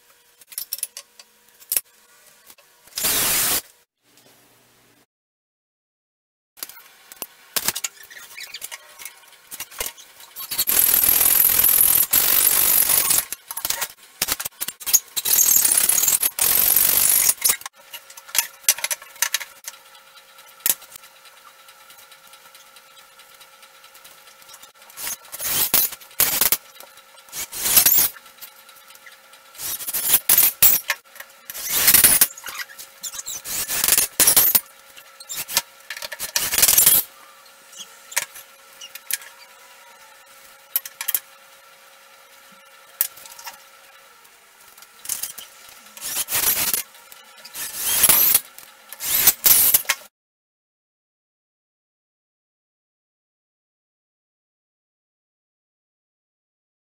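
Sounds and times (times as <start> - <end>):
drill driving screws into wood: 3.0 - 3.6, 10.5 - 13.4, 15.2 - 17.6, 25.0 - 26.6, 27.3 - 28.1, 29.6 - 30.8, 31.5 - 32.3, 33.3 - 34.6, 36.2 - 37.0, 46.0 - 46.8, 47.6 - 48.4, 49.0 - 49.9
hacksaw cutting wood: 9.9 - 17.7, 24.6 - 28.2, 29.6 - 37.1, 45.1 - 50.0.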